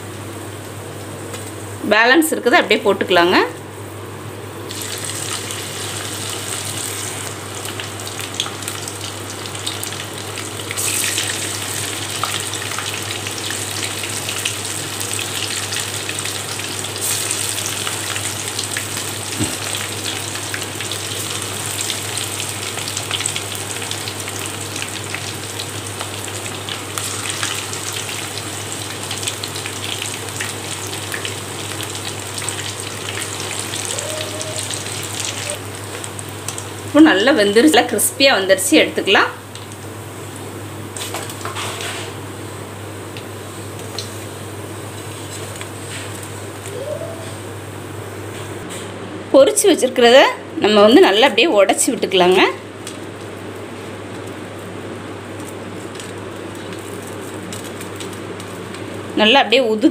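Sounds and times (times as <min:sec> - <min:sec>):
oil sizzling and crackling: 0:04.5 - 0:48.6, 0:51.7 - 0:59.9.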